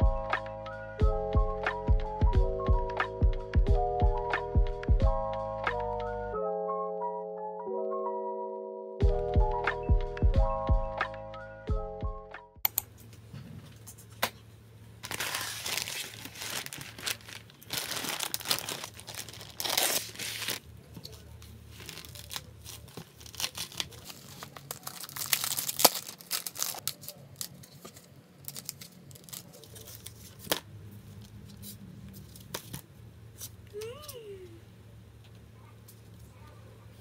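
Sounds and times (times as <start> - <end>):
packaging tearing and crinkling: 15.0 - 30.6.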